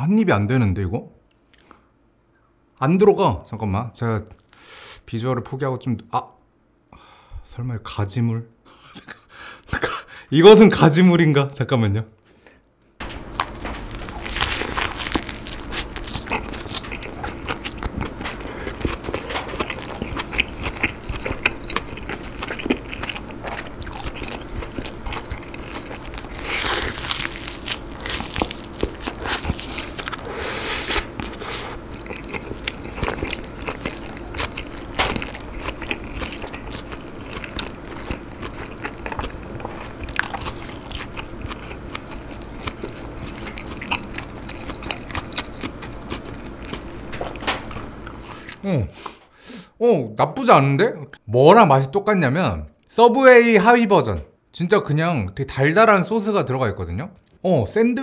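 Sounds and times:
person chewing a burger: 13.1s - 49.2s.

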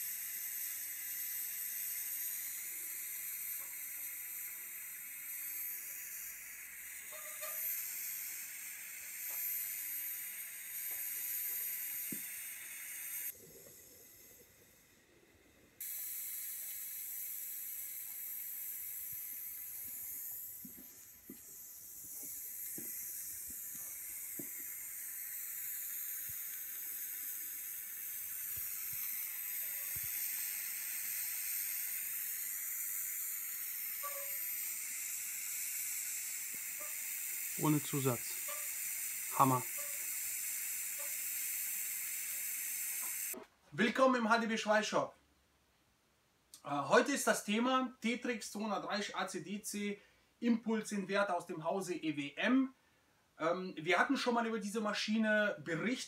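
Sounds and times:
welding arc hissing: 0.0s - 15.0s, 15.8s - 43.4s.

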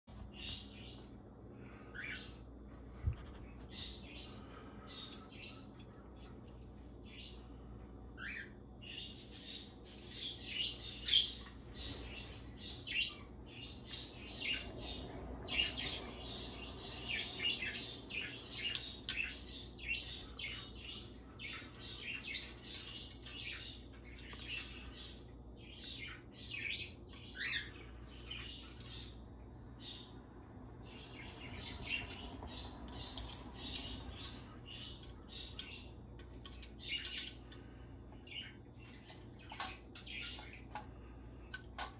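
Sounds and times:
cockatoo chirping and clicking: 9.2s - 29.2s, 31.1s - 41.9s.

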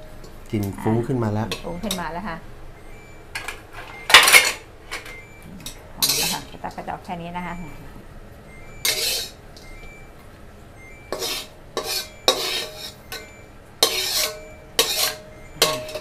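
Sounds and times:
metal spatula scraping wok: 6.0s - 6.6s, 8.8s - 9.4s, 11.1s - 16.0s.

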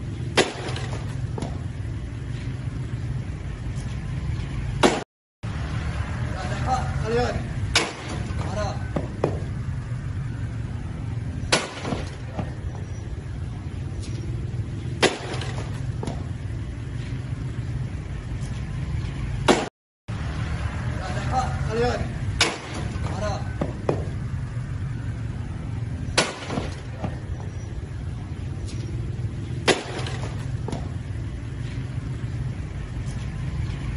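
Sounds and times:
rock striking motorcycle: 0.2s - 2.6s, 7.7s - 9.6s, 14.0s - 17.2s, 22.4s - 24.3s, 28.6s - 32.1s.

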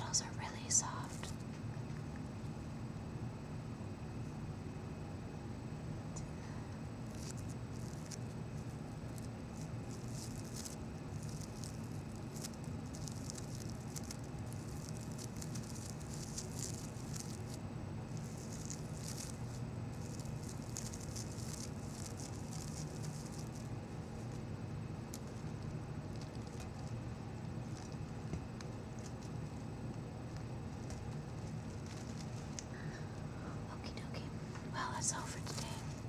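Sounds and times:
steady low hum: 0.0s - 36.0s
fingers rustling flowers: 7.0s - 33.3s, 35.0s - 36.0s.

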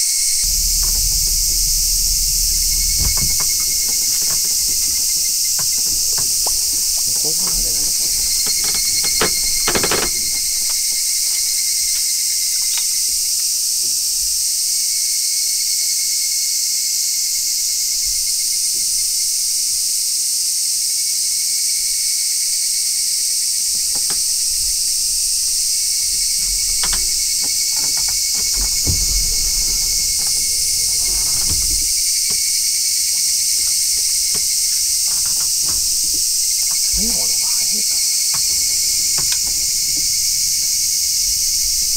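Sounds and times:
lower-pitched buzzing: 0.0s - 13.4s, 23.6s - 41.9s
cicadas chorus: 0.0s - 41.9s.

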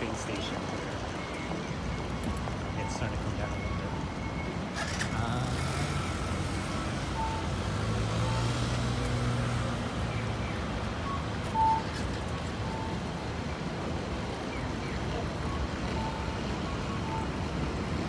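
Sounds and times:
vehicle engine passing: 4.8s - 10.4s
short high beeps: 11.0s - 11.9s.

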